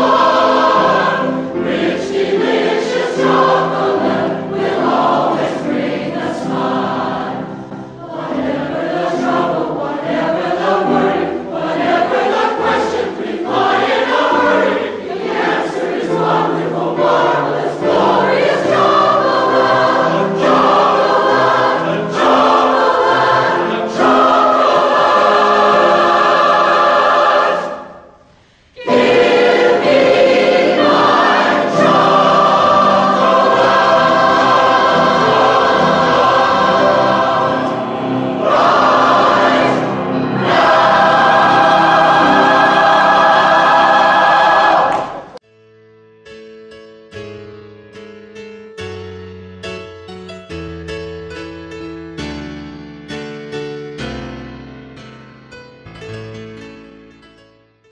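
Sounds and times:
choir singing: 0:00.0 - 0:45.4.

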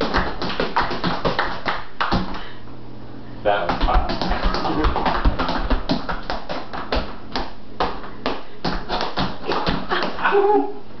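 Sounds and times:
tap shoes on tiled floor: 0:03.7 - 0:10.1.

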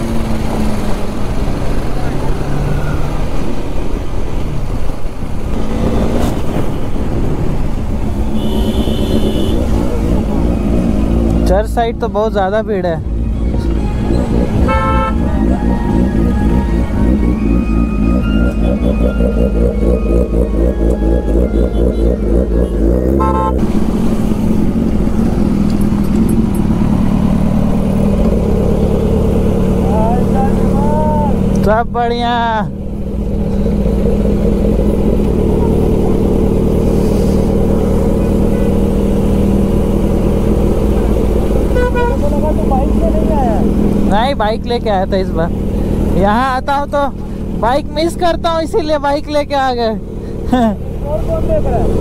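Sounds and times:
road and wind noise: 0:00.0 - 0:52.0
motorcycle engine running: 0:08.1 - 0:52.0.

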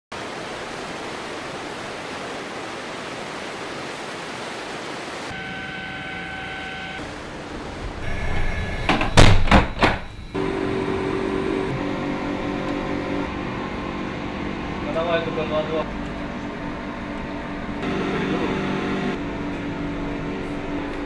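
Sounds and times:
wind: 0:00.1 - 0:10.4
churning sea water rushing: 0:00.1 - 0:21.0
steady humming tone: 0:05.3 - 0:21.0
loud knocks: 0:08.8 - 0:10.1.

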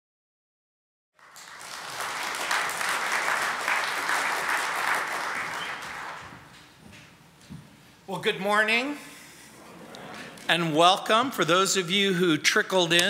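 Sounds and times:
congregation applauding: 0:01.2 - 0:06.8.

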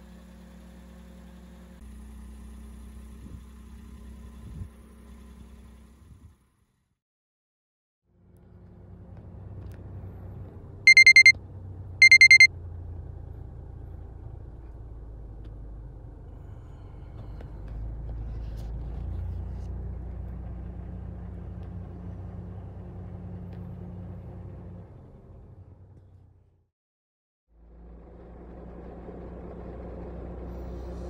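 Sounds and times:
electronic alarm beeping: 0:10.9 - 0:11.3, 0:12.0 - 0:12.5.

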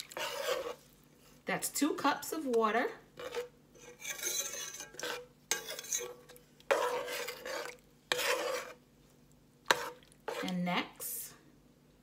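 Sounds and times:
spoon stirring sloshing broth: 0:00.0 - 0:01.4, 0:03.1 - 0:10.6.

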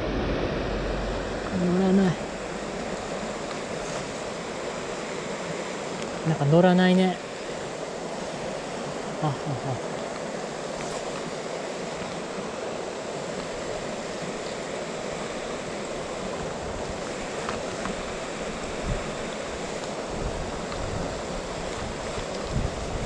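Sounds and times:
wind buffeting microphone: 0:00.0 - 0:06.0, 0:15.5 - 0:23.0
stream water rushing: 0:00.0 - 0:23.0.

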